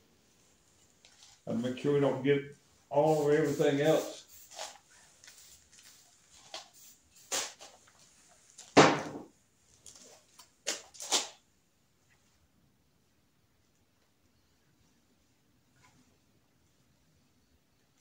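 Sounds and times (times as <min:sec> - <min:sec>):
faint handling sounds: 0:00.2 - 0:01.6, 0:02.5 - 0:08.8, 0:09.6 - 0:11.3, 0:13.7 - 0:18.0
aerosol can spraying: 0:03.0 - 0:07.8.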